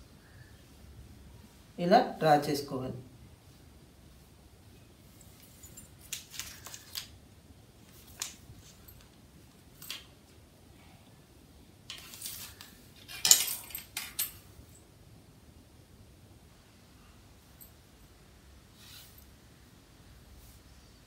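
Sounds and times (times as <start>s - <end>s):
short rustles and clicks: 5.1s - 7.2s.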